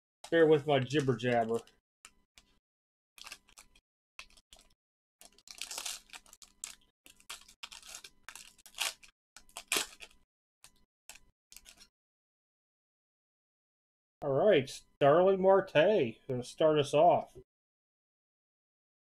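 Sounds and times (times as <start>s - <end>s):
foil wrapper tearing and crinkling: 3.2s - 10.2s, 11.6s - 11.9s.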